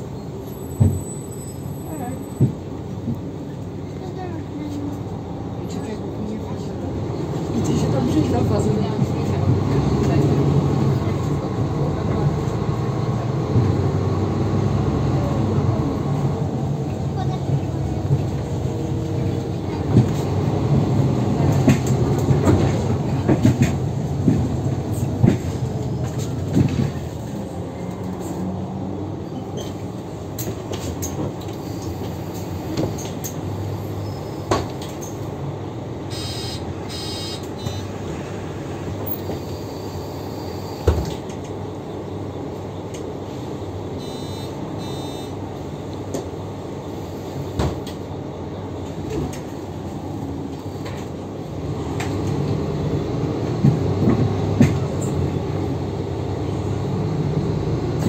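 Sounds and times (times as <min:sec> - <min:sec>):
bus diesel engine: 0:00.0 - 0:58.0
short high beeping: 0:36.1 - 0:37.9.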